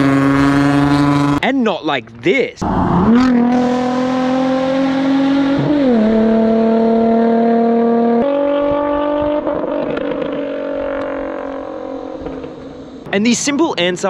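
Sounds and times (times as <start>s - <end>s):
car exhaust note at steady revs: 3.0s - 13.1s.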